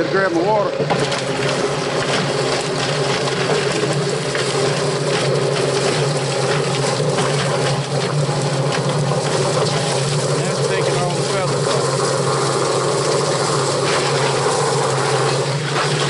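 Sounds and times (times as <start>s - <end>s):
chicken plucker machine humming: 0.0s - 16.0s
hose spraying water: 0.0s - 16.0s.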